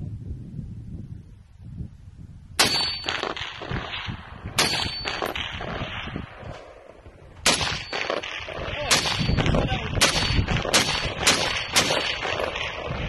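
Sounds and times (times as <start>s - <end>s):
rifle shots with echo: 2.6s - 13.0s.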